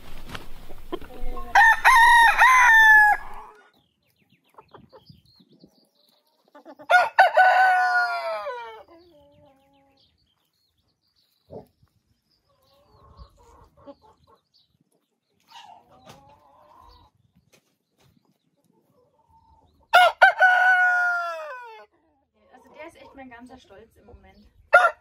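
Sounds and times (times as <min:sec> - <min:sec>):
rooster crowing loudly: 0:01.5 - 0:03.6, 0:06.9 - 0:08.8, 0:19.9 - 0:21.8, 0:24.7 - 0:25.0
hens clucking softly: 0:11.2 - 0:20.0.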